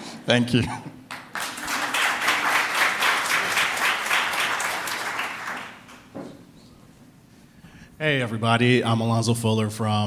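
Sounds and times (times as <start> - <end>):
audience applauding: 1.1 - 6.1.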